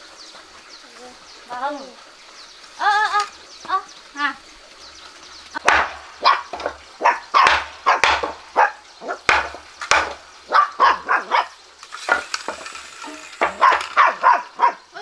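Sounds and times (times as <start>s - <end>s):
puppy yapping: 6.2s - 9.2s, 10.5s - 12.2s, 13.0s - 14.9s.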